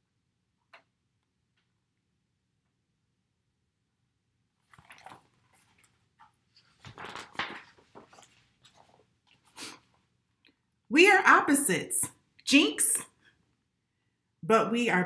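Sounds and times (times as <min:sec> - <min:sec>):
book pages rustling: 0:04.6 - 0:10.0.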